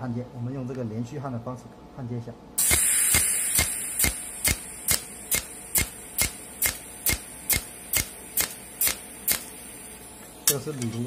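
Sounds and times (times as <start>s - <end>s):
welding arc snapping: 2.6s - 9.8s, 10.4s - 11.0s
high hiss of welder: 2.6s - 10.7s.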